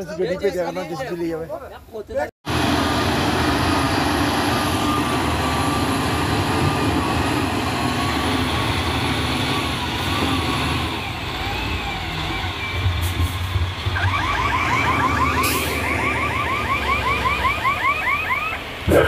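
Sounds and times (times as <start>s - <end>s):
diesel engine running: 2.5s - 17.7s.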